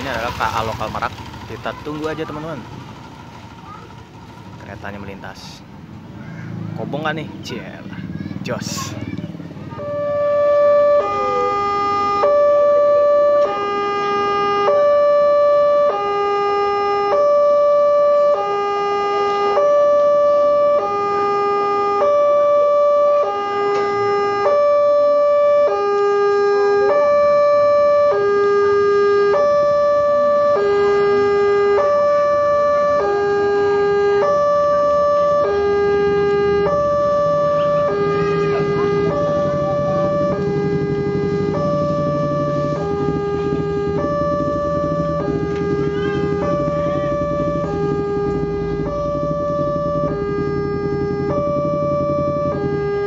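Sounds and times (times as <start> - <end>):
two-tone crossing alarm: 9.7 - 53.0
low rumble: 36.5 - 53.0.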